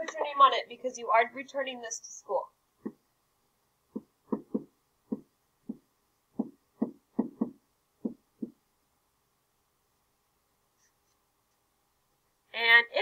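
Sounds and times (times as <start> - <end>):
pen tapping on whiteboard: 4.0 - 5.8, 6.4 - 8.6.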